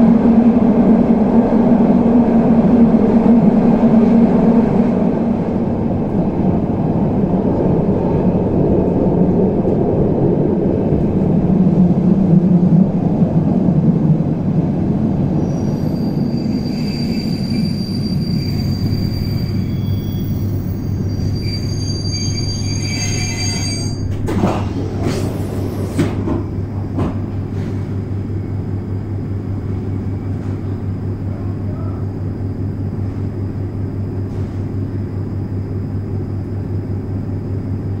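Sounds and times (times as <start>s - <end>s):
electric train hum: 0.0s - 38.0s.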